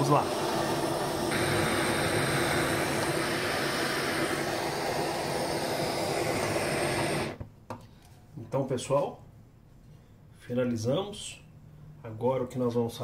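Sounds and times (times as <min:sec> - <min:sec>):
blowtorch flame hissing: 0:00.0 - 0:07.4.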